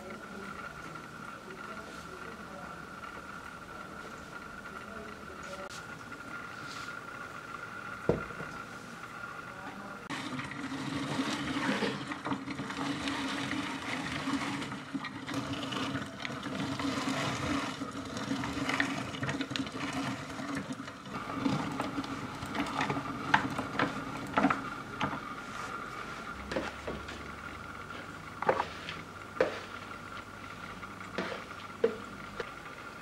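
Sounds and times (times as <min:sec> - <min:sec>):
electric grinder running: 0:10.1 - 0:25.2.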